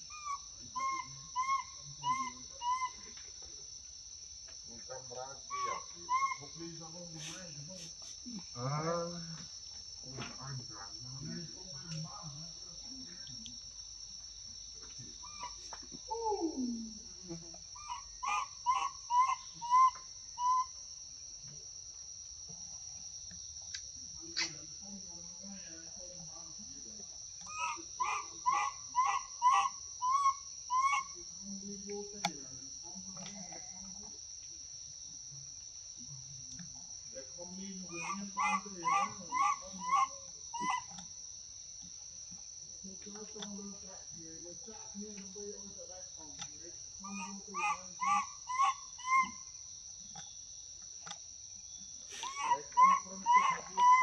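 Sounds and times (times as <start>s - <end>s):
high-pitched insect drone: 0.0s - 54.0s
short rising-and-falling animal calls: 17.8s - 20.8s, 27.5s - 31.2s.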